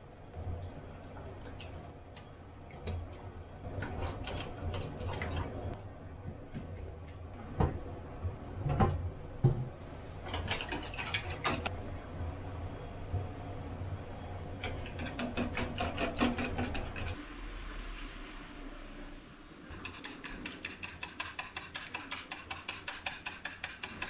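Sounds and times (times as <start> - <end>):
utensils and bowls knocking: 19.7 - 24.0
wire whisk beating in bowl: 19.7 - 24.0.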